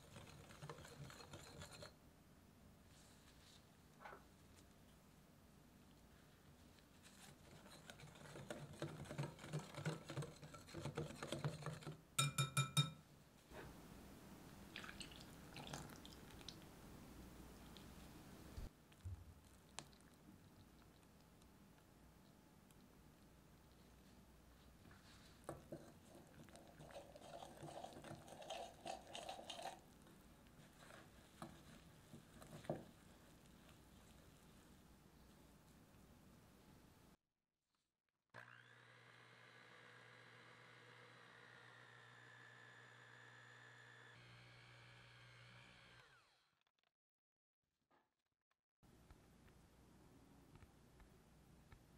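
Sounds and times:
whisk scraping glass bowl: 0.0s - 2.0s, 7.2s - 12.7s, 25.4s - 29.8s
whisk clinking on glass bowl: 0.2s - 1.9s, 9.0s - 13.0s
dough hook scraping dough: 7.2s - 12.0s
metal hook clicking on glass bowl: 12.2s - 13.0s.

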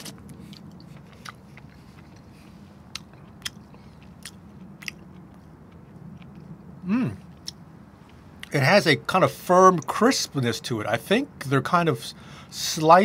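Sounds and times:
person chewing crunchy food: 0.0s - 8.6s
low steady hum: 0.0s - 13.0s.

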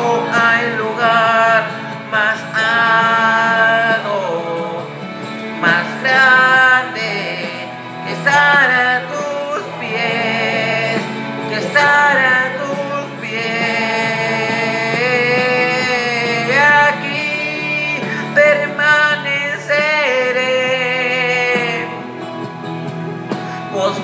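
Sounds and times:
man singing worship song: 0.0s - 22.1s, 23.5s - 24.0s
instrumental backing track: 0.0s - 24.0s.

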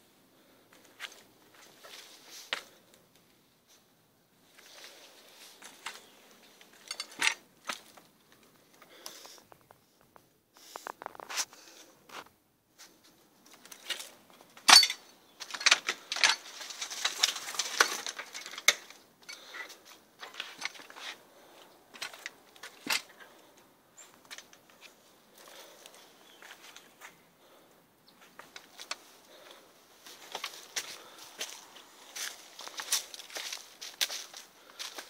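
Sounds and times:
rustling: 0.4s - 35.0s.

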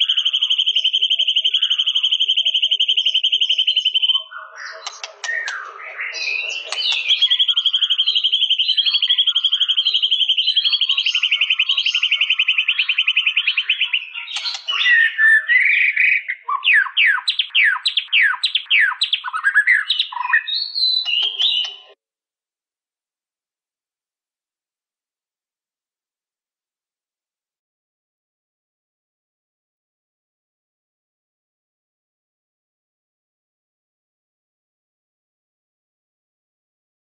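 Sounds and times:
songbird singing trills and whistles: 0.0s - 22.0s.

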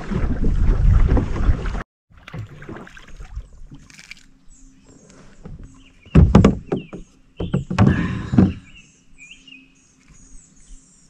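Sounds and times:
small birds chirping: 4.4s - 11.0s
knocking and rustling: 5.4s - 8.7s.

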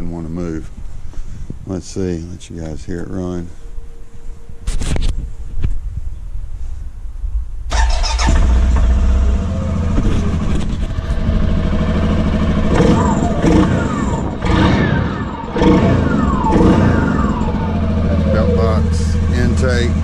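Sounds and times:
atv engine revving: 7.7s - 20.0s
atv engine starting and idling: 7.7s - 20.0s.

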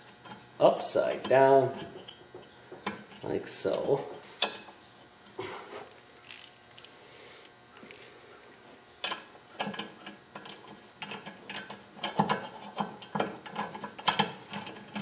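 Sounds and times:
ratchet wrench clicking: 6.2s - 6.9s.

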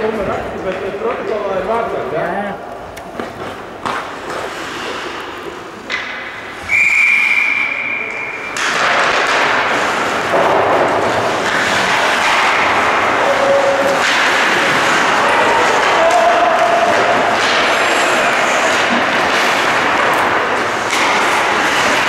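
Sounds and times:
referee's whistle: 6.6s - 8.6s.

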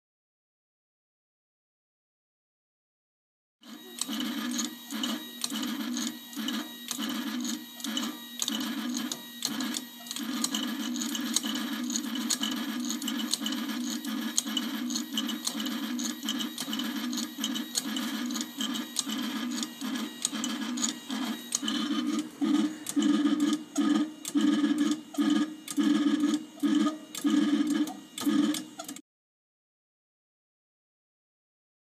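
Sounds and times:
safe dialer motor whirring and clicking: 3.6s - 29.0s.

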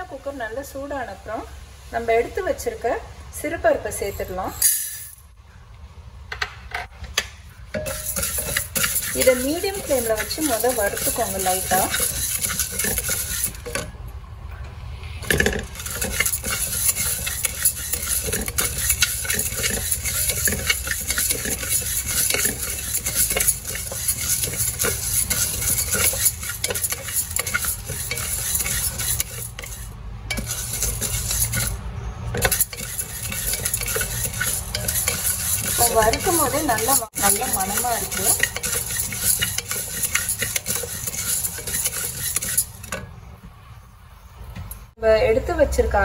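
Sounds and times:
spatula stirring dry lentils in pan: 7.6s - 14.0s, 15.2s - 43.3s.

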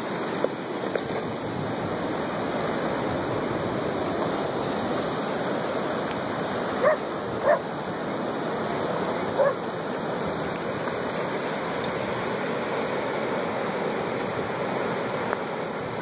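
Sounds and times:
ocean surf rushing: 0.0s - 16.0s
dog barking: 6.8s - 7.6s, 9.4s - 9.6s.

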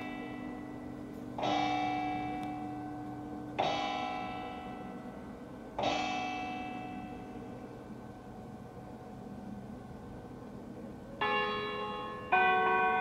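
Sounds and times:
church bell ringing: 0.0s - 9.2s, 11.2s - 13.0s.

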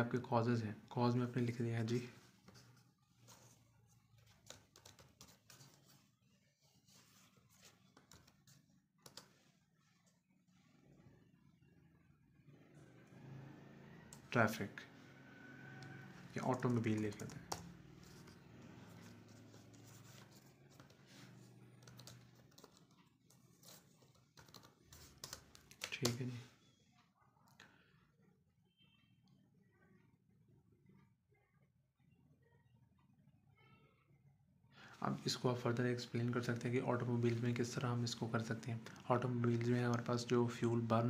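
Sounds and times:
laptop keys typing: 4.2s - 6.0s, 7.6s - 9.4s, 15.8s - 26.4s.

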